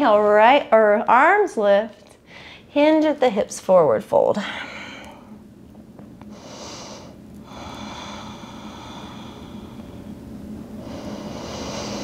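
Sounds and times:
woman breathing: 2.2 - 2.7, 4.4 - 5.4, 6.3 - 12.0.

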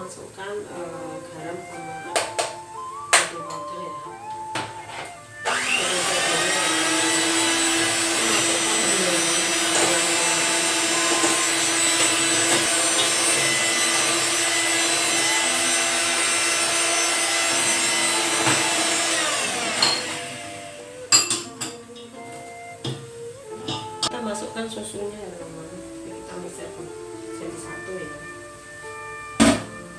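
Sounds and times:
electric hand mixer whipping eggs: 4.2 - 21.7.

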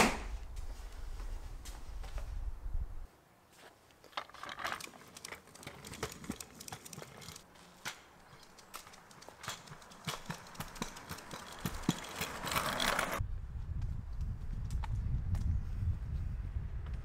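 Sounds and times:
kick scooter rolling on concrete: 3.6 - 15.6.

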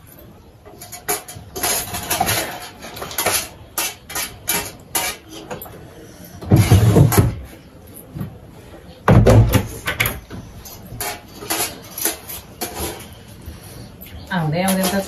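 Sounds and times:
cutlery clinking on steel plates: 0.0 - 5.8, 9.9 - 13.3, 14.2 - 15.0.

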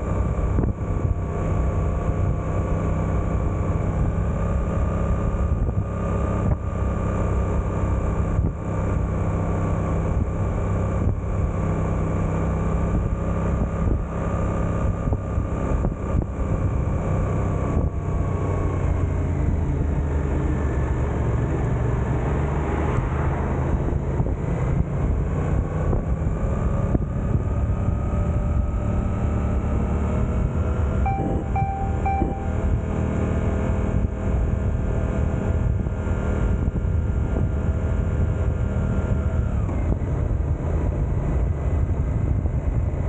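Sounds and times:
motorcycle engine running: 0.0 - 22.4, 23.6 - 43.0.

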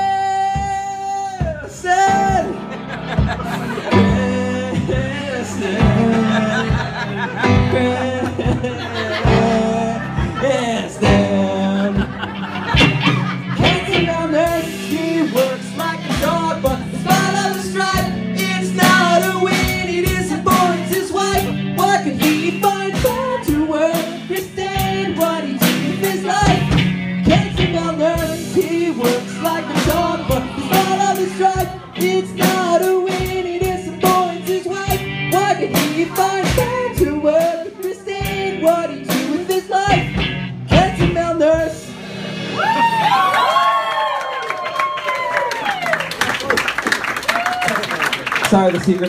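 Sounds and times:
man singing into a microphone: 0.0 - 2.6, 3.7 - 12.4, 13.5 - 41.9
electric keyboard: 1.9 - 40.9
electric guitar: 2.1 - 46.5
steady beat: 12.0 - 41.8.

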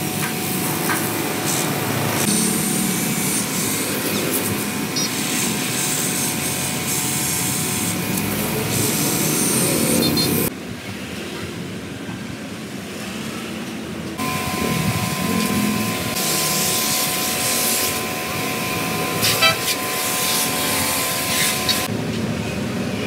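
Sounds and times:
pressure washer jet spraying: 14.2 - 21.9.

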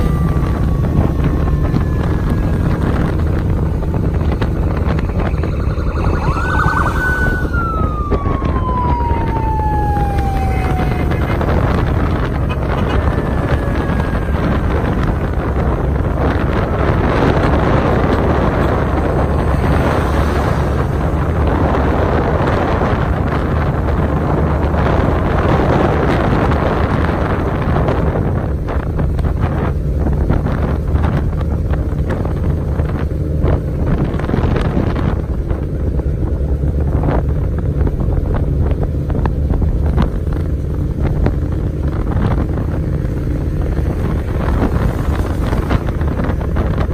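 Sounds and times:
siren wailing: 0.0 - 23.9, 42.4 - 46.9
vehicle low rumble: 0.0 - 46.9
wind buffeting microphone: 0.0 - 46.9.

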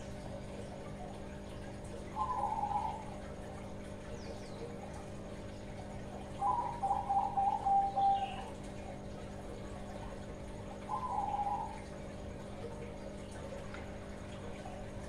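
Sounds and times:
dove cooing: 2.0 - 3.8, 5.9 - 8.6, 10.7 - 12.0.

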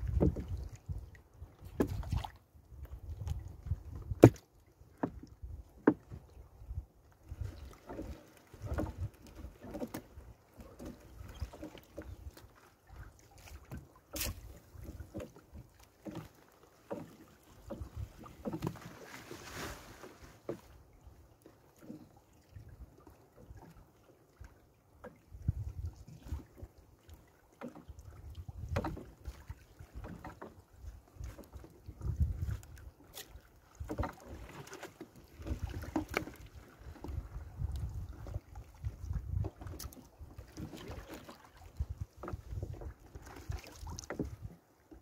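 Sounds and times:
net knocking against boat hull: 4.1 - 4.4
water splashing: 7.4 - 20.7, 28.6 - 44.6
wet rustling of net: 18.8 - 20.5.

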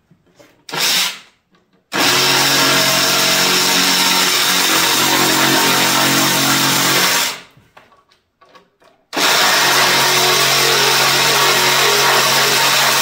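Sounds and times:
reciprocating saw cutting plastic: 2.0 - 7.5, 9.2 - 13.0.

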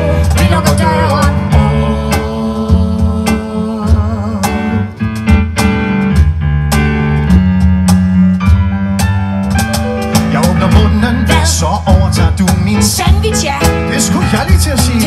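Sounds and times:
pop music over speakers: 0.0 - 4.9, 10.2 - 15.0
guitar: 0.0 - 15.0
steady drum beat: 0.0 - 15.0.

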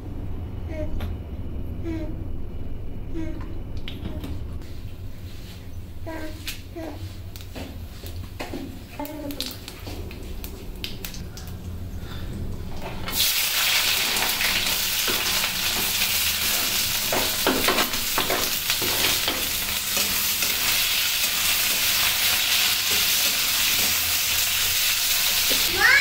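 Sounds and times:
onions sizzling in oil: 13.1 - 26.0.

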